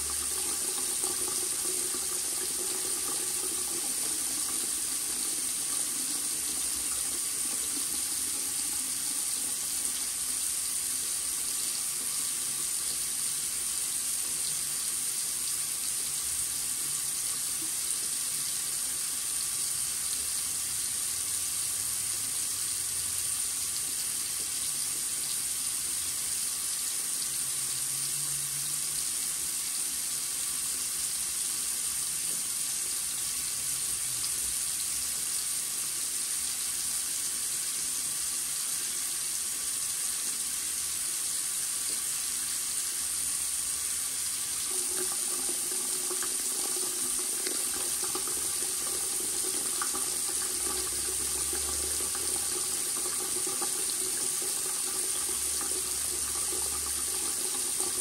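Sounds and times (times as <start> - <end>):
faucet running into sink: 0.0 - 58.0.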